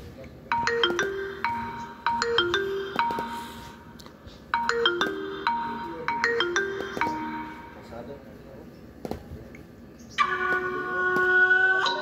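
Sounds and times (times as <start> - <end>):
phone ringtone melody: 0.5 - 8.0.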